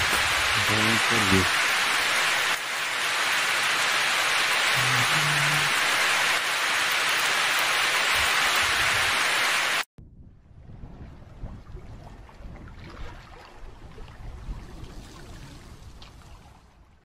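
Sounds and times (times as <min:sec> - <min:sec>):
heavy rain hissing: 0:00.0 - 0:09.9.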